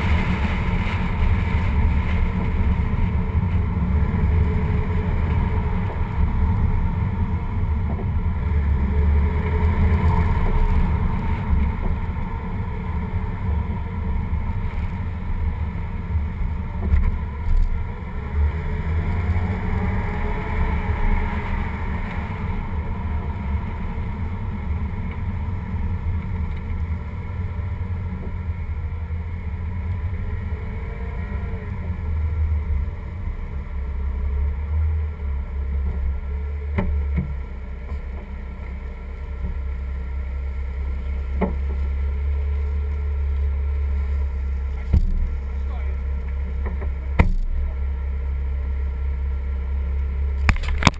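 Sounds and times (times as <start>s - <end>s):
tyre and wind noise: 0.0s - 47.7s
car engine hum: 0.0s - 50.9s.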